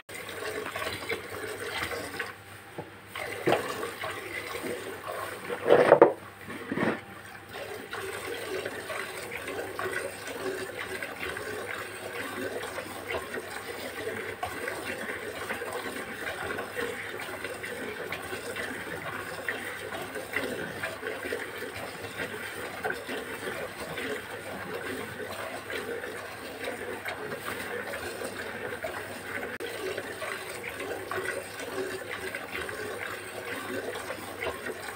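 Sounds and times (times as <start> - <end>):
bucket bumps: 3.4 - 3.7, 5.5 - 7.0.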